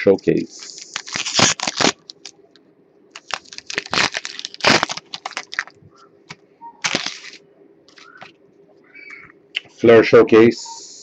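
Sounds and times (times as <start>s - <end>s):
foil wrapper crinkling and tearing: 0.6s - 2.4s, 3.1s - 5.8s, 6.8s - 8.3s.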